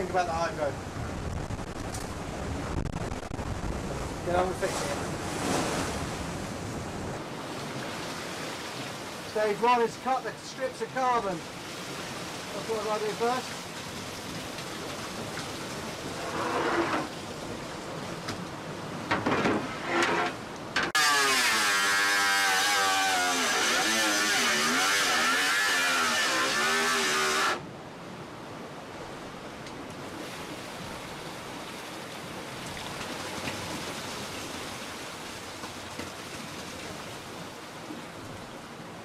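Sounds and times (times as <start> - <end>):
angle grinder cutting: 19.8 - 27.6.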